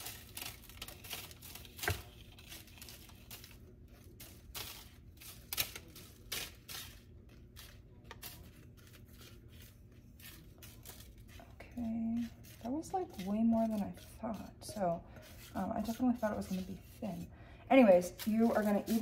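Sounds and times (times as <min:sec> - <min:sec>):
spatula scraping glass bowl: 0:08.8 - 0:19.0.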